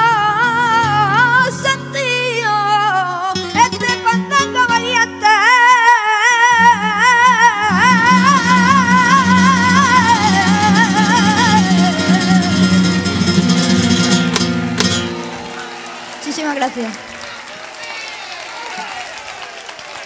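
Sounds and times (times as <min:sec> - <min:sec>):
boy singing with vibrato: 0:00.0 - 0:13.0
flamenco guitar: 0:00.0 - 0:17.1.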